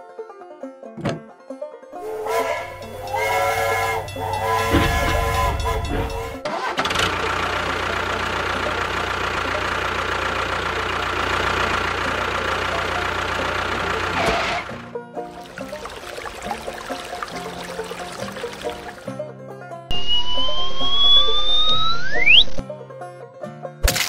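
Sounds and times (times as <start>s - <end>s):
whistle-like tones: 2.0s - 6.4s, 19.9s - 22.6s
toy tractor motor running: 2.0s - 14.8s.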